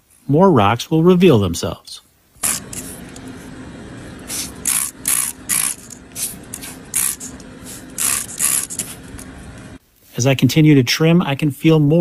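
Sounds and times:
spray bottle squirting: 2.4 - 3.4, 4.2 - 9.4.

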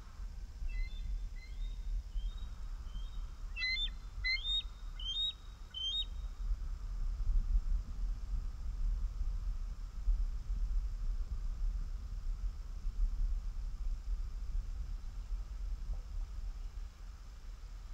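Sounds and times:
eagle piping chirps: 0.7 - 6.2.

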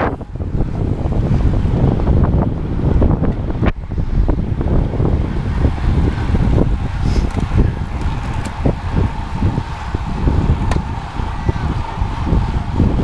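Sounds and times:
tyre and road noise: 0.0 - 13.0
wind buffeting microphone: 0.0 - 13.0.

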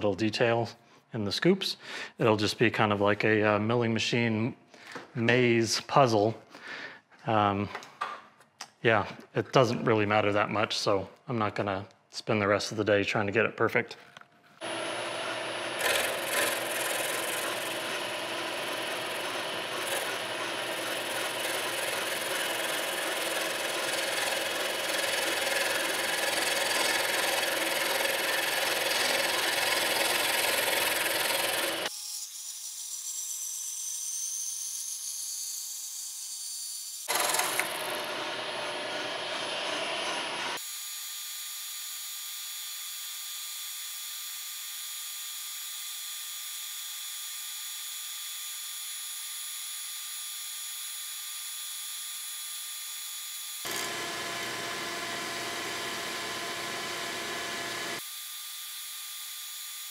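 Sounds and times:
milling machine cutting: 14.6 - 31.9, 37.1 - 40.6, 53.7 - 58.0.

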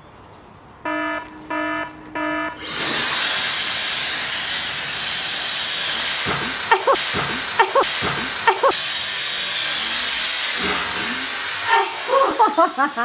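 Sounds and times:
short electronic beep: 0.9 - 2.6
blow dryer blowing air: 2.6 - 13.0.

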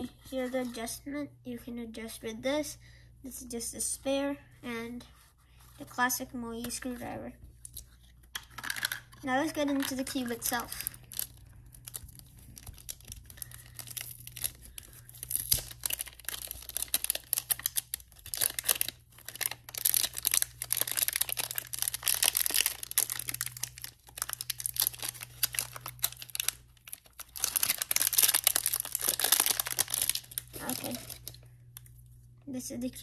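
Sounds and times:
faint low hum: 0.0 - 33.0
plastic wrap crinkling and tearing: 8.4 - 31.4.

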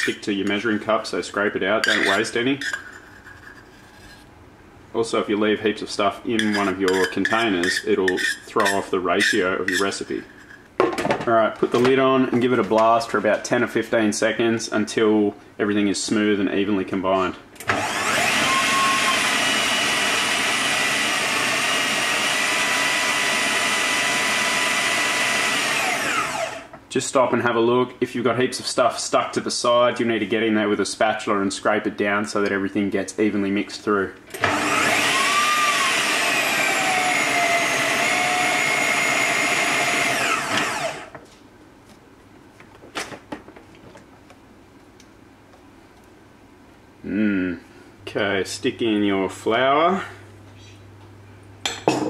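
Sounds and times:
food processor motor running: 17.7 - 26.7, 34.4 - 41.1.

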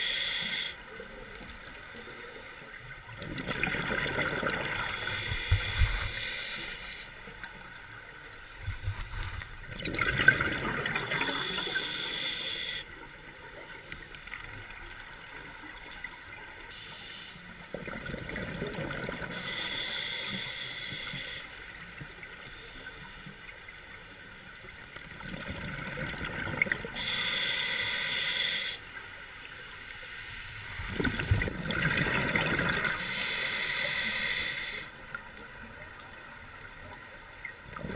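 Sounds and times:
hissing regulator inhale: 0.0 - 1.0, 4.7 - 7.2, 11.0 - 12.9, 16.7 - 17.6, 19.2 - 21.7, 26.9 - 28.9, 32.8 - 35.0
bubbling gurgling exhale: 3.2 - 6.0, 9.7 - 11.9, 30.9 - 33.0.

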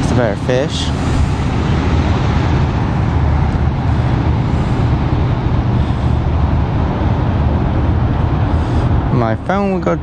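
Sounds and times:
loud low rumbling: 0.0 - 10.0.

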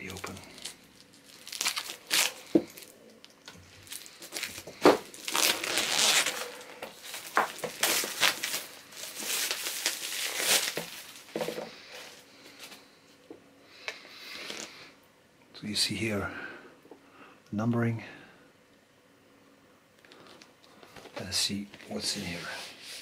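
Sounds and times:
plastic wrap snapping: 0.0 - 11.6
plastic shrink-wrap crinkling: 0.0 - 12.8.

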